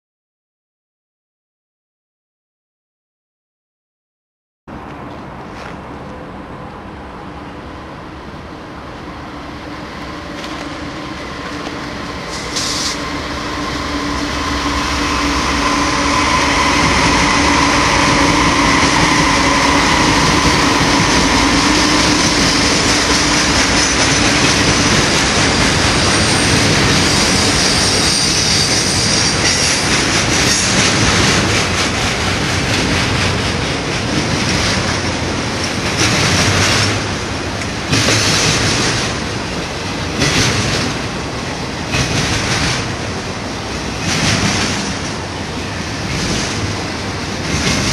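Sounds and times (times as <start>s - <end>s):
diesel locomotive engines: 4.7s - 47.9s
train wheels rumbling on rail: 4.7s - 47.9s
high wheel squeal: 10.1s - 23.1s, 25.5s - 30.0s.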